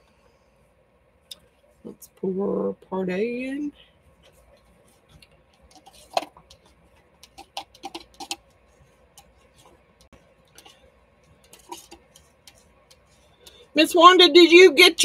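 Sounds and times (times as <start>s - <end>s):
stir stick scraping plastic cup: 4.3s - 13.6s.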